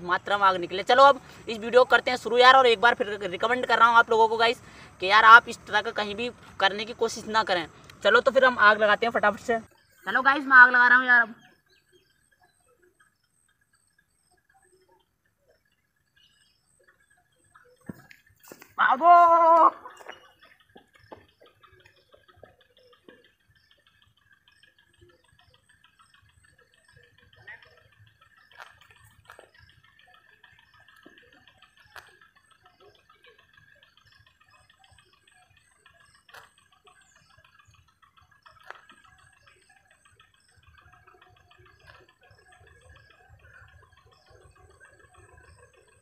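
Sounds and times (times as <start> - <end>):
faint clicks: 19.9 - 46.0.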